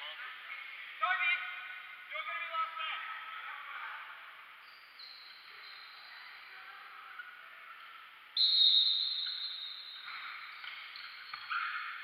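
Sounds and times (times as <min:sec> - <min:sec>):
referee's whistle blast: 0:08.4 - 0:10.1.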